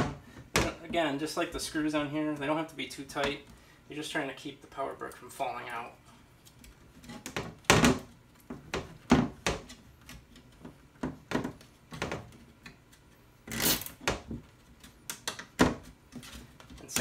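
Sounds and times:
cable ties zipping tight: 13.5 - 14.0.

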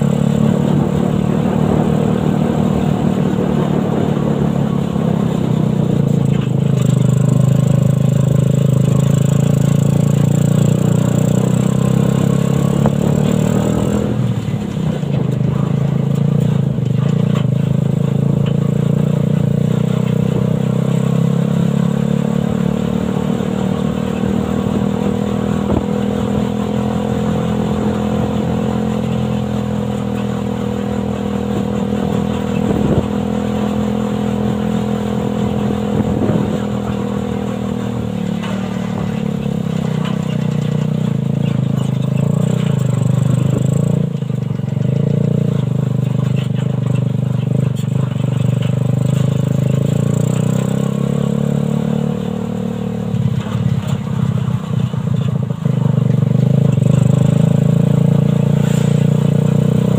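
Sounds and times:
single-cylinder engine running: 0.0 - 59.9
buggy clattering knocks: 35.8 - 50.6.

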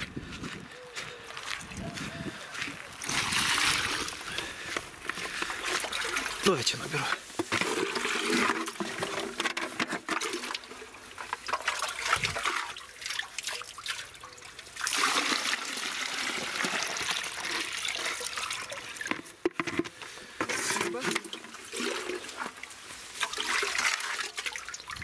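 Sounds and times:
water pouring into a container: 3.0 - 4.6, 5.2 - 9.5, 10.1 - 19.2, 20.5 - 25.0.

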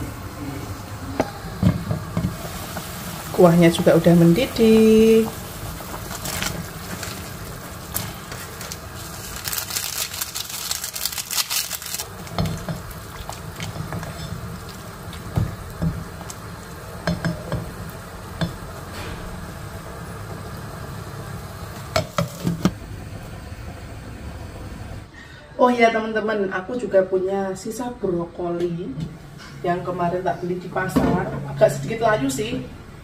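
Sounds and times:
soup boiling and splashing: 0.1 - 25.1.

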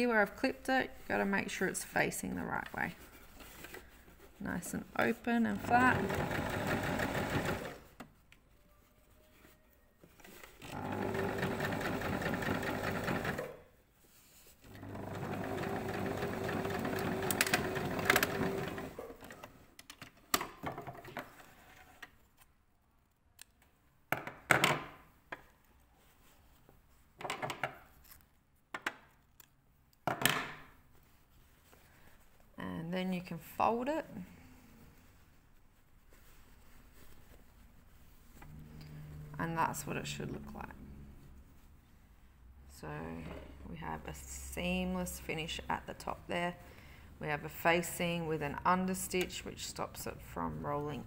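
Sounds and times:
fabric rustling: 0.1 - 19.2, 25.6 - 27.2, 30.7 - 43.0
sewing machine running: 5.6 - 7.9, 10.6 - 13.5, 14.7 - 19.0.

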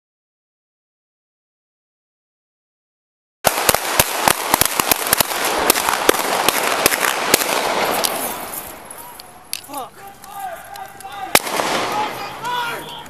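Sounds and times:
sharp cracks and knocks: 3.5 - 9.7, 10.3 - 12.6.

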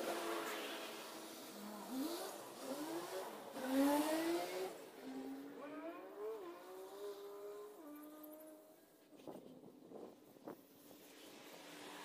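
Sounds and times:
vehicle engine revving: 1.1 - 8.5.

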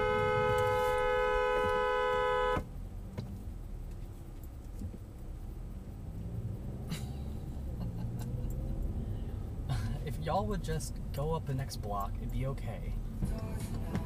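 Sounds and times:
two-tone car horn blast: 0.0 - 2.7
low road rumble: 0.0 - 14.0.

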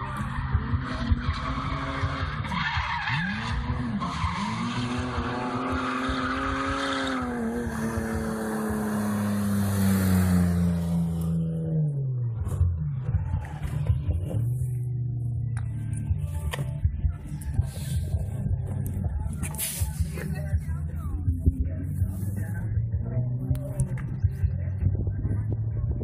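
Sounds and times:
car engine revving: 0.0 - 16.3.

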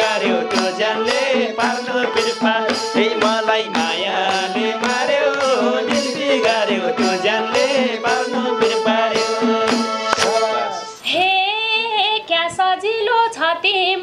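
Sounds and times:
group singing folk song: 0.0 - 11.0
steady drone: 0.0 - 11.0
hand clapping: 2.7 - 6.6, 9.6 - 10.4
woman singing: 11.0 - 14.0.

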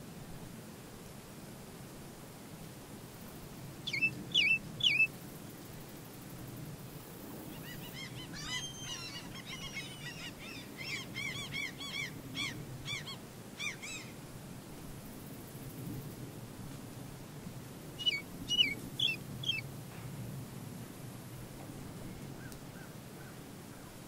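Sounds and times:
flamingo loud calls: 3.9 - 5.1, 18.0 - 19.6
flock calling rapidly: 3.9 - 5.1, 7.6 - 14.1, 18.0 - 19.6.

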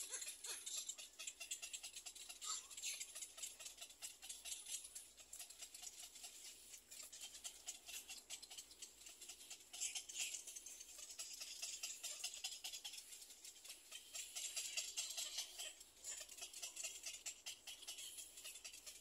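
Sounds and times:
egret chicks clicking chatter: 0.0 - 19.0.

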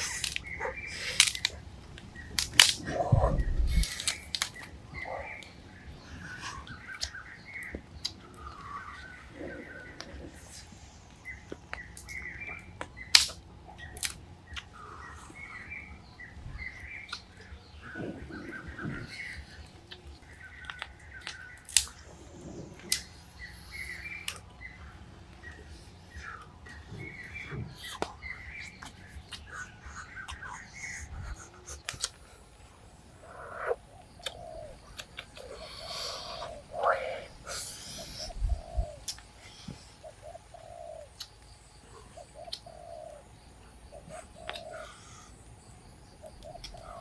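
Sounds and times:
sharp crack: 0.0 - 4.7, 12.8 - 14.7, 19.9 - 22.1
birds chirping: 0.0 - 47.0.

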